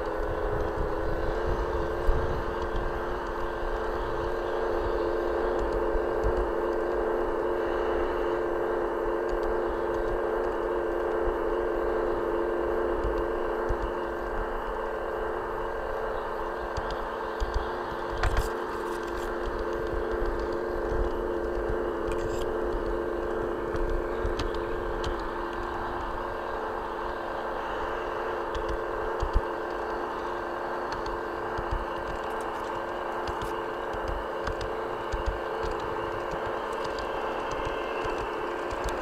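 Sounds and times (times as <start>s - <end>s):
model train motor whine: 0.0s - 39.0s
wheels rumbling on rails: 0.0s - 39.0s
wind buffeting microphone: 0.0s - 39.0s
sharp clicks: 9.2s - 11.2s, 13.0s - 14.0s, 16.7s - 26.2s, 28.4s - 39.0s.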